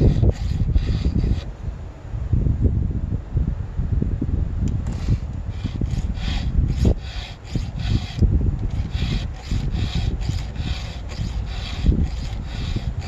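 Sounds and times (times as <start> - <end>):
file rasping on chainsaw chain: 0.0 - 1.5, 4.9 - 13.0.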